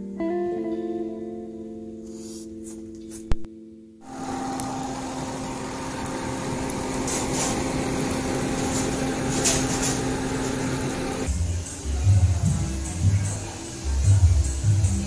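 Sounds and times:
faint fire crackles: 4.0s - 15.0s
motor hum with rushing hiss: 4.0s - 15.0s.

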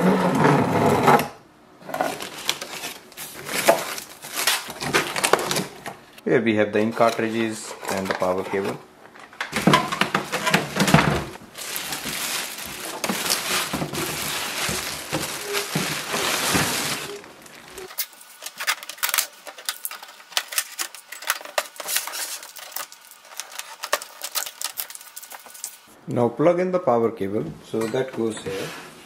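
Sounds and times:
plastic bag crinkling: 2.0s - 5.9s, 9.5s - 26.0s
packing tape clicks and ticks: 17.4s - 25.8s.

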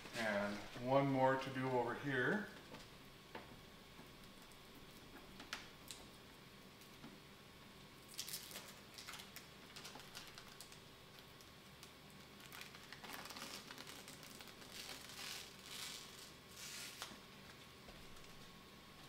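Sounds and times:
plastic film crackling: 8.1s - 18.4s.

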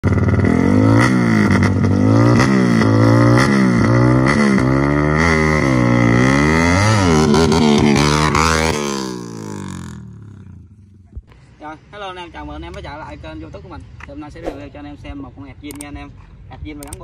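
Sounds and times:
motorcycle engine revving: 0.0s - 10.5s.

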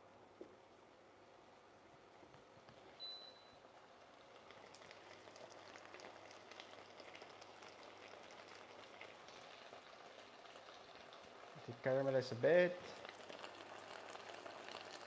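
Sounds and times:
vegetables sizzling in a pan: 4.4s - 15.0s.

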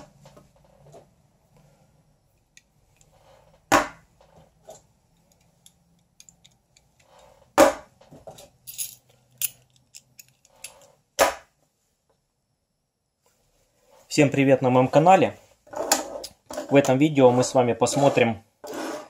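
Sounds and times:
metal tools clicking and jingling: 5.2s - 7.2s, 8.5s - 10.9s.

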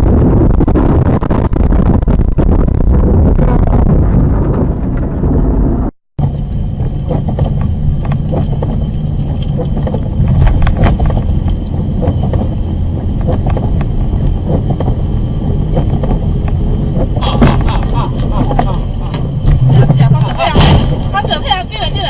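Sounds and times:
engine and tyres rumbling on wet road: 4.7s - 22.0s
raindrops clicking on windshield: 6.2s - 19.5s.

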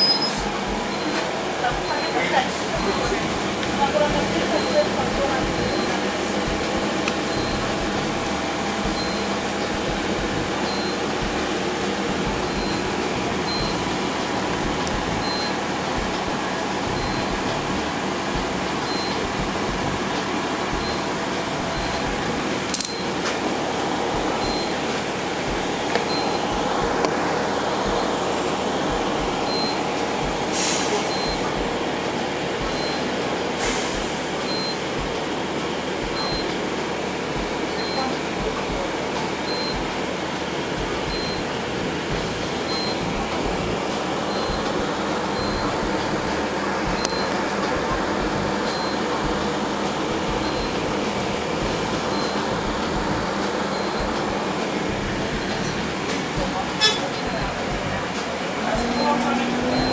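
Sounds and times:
short high beep: 0.0s - 3.4s, 8.8s - 11.2s, 30.6s - 31.6s, 56.8s - 57.3s, 58.7s - 59.9s
bus engine and road rumble: 0.0s - 59.9s.

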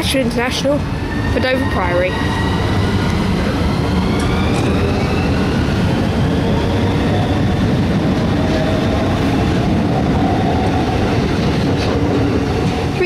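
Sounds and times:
train wheels rumbling on rail: 0.0s - 13.0s
electric traction whine: 0.6s - 13.0s.

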